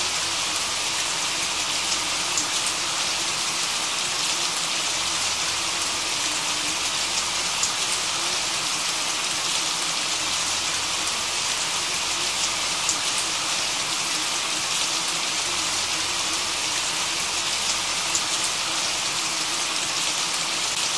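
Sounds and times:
steady rain hiss: 0.0 - 20.9
faint raindrop ticks: 7.6 - 8.0, 12.4 - 13.3, 17.7 - 18.5.

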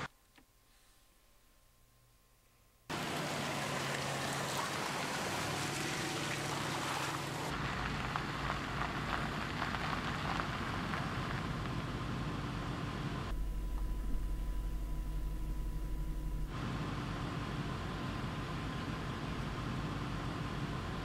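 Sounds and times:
tyres crackling over gravel: 2.9 - 12.5
tyres driving through wet mud: 2.9 - 13.4, 16.5 - 21.0
car engine running low: 2.9 - 21.0.

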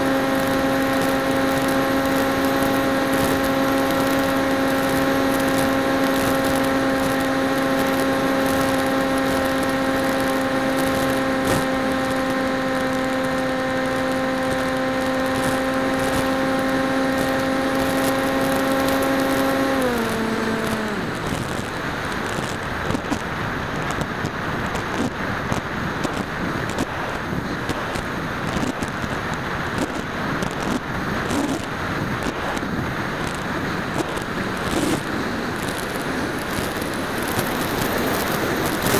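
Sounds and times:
electric motor propeller whine: 0.0 - 23.0
rushing wind: 0.0 - 38.9.

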